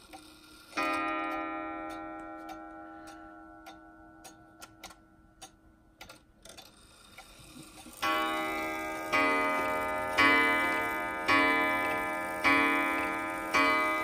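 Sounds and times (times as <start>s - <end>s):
clock ticking: 0.0s - 14.0s
clock gong strike: 8.0s - 14.0s.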